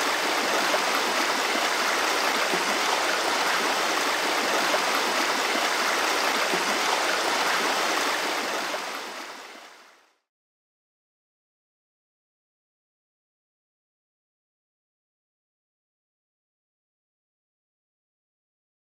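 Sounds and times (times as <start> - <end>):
flowing water rushing: 0.0 - 10.2.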